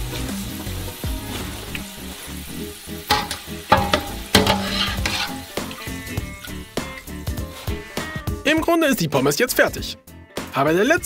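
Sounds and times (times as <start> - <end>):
fries sizzling: 0.0 - 8.6
background music: 0.0 - 11.0.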